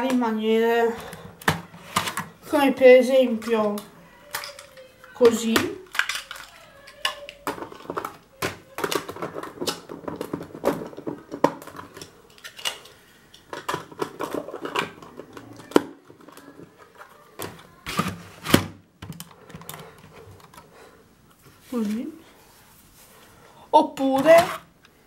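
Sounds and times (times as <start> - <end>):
plastic bricks clattering and clicking: 3.4 - 17.6.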